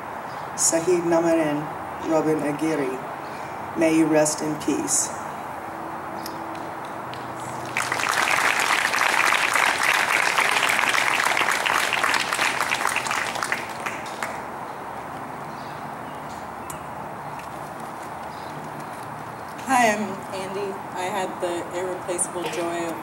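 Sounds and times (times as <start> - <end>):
audience applauding: 6.8 - 14.5.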